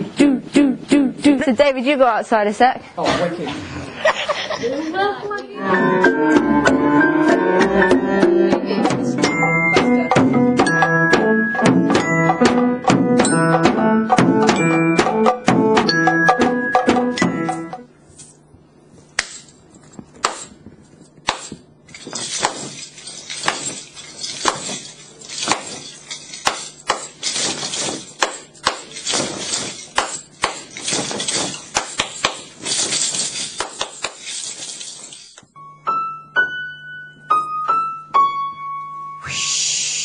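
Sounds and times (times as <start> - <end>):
glockenspiel struck with mallets: 9.1 - 17.9
drum hit with sticks: 9.8 - 17.8.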